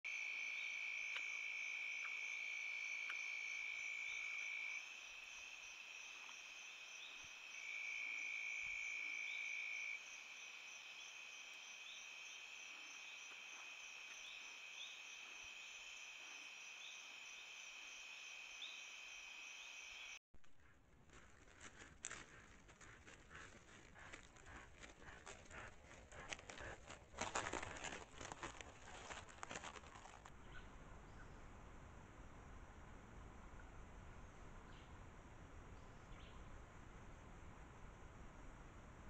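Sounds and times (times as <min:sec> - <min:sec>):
insect chirps: 0:00.1 - 0:20.2
insects trilling: 0:00.1 - 0:20.2.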